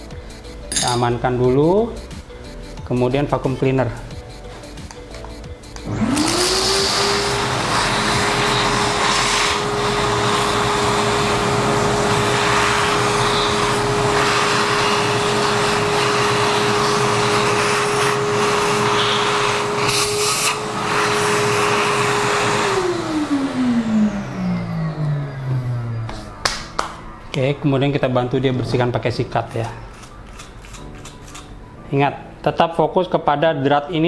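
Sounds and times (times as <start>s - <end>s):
motor winding down whine: 5.8s - 26.2s
vacuum cleaner running: 5.8s - 26.9s.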